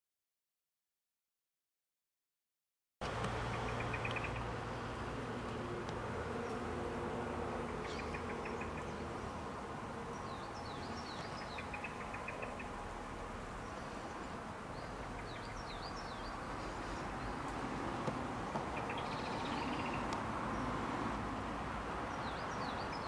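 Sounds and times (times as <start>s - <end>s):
small birds chirping: 3.0s - 6.7s, 7.6s - 21.1s, 22.0s - 23.0s.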